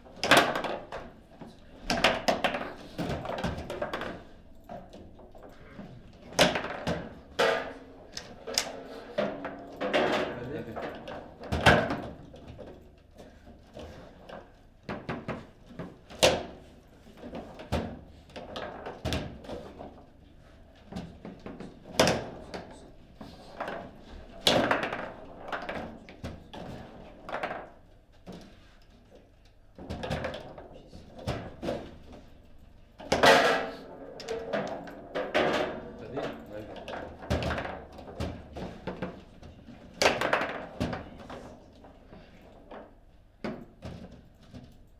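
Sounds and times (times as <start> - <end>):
ball striking table football figures: 33.0 - 41.8.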